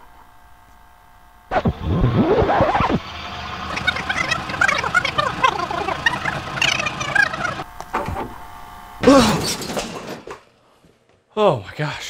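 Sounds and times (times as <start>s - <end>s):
static hiss: 0.0s - 4.6s
sped-up chattering voice: 3.6s - 7.7s.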